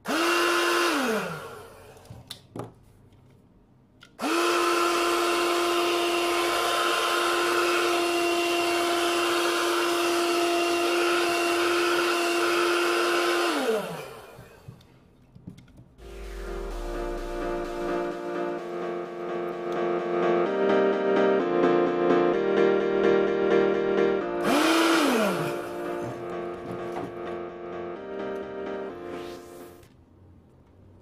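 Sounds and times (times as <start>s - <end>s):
vacuum motor whine: 0.0s - 2.1s, 4.2s - 14.9s, 24.4s - 27.0s.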